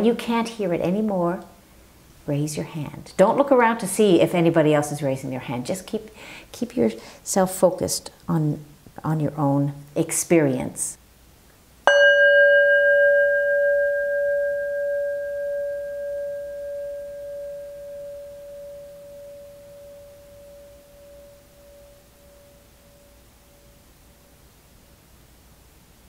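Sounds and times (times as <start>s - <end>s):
chime ringing: 11.9s - 23.2s.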